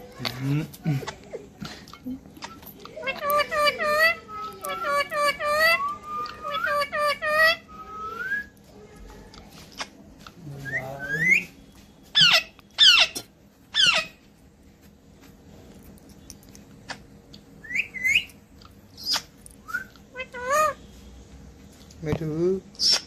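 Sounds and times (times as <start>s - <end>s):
parakeet whistles and squawks: 2.4s - 8.6s, 12.1s - 14.2s, 17.6s - 18.4s, 19.0s - 20.8s, 22.8s - 23.0s.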